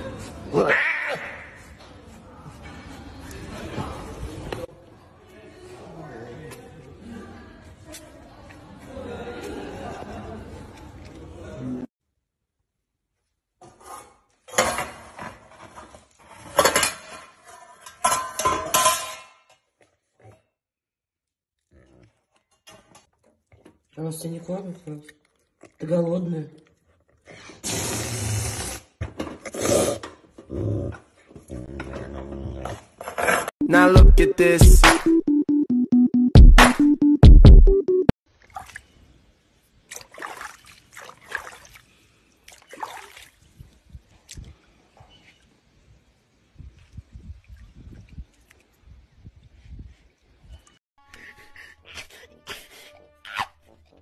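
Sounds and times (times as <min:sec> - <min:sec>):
metal saucepan and lid clattering: 0:16.5 - 0:19.7
water sloshing and splashing: 0:38.3 - 0:44.5.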